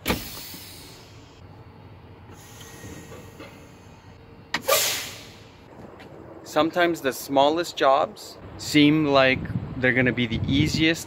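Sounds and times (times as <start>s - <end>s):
air brake valve air blasts: 0.0s - 1.4s, 2.3s - 5.7s.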